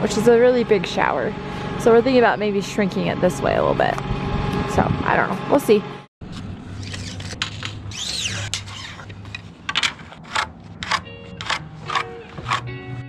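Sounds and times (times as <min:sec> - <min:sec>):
pencil scratching on wood: 0:09.8 - 0:12.6.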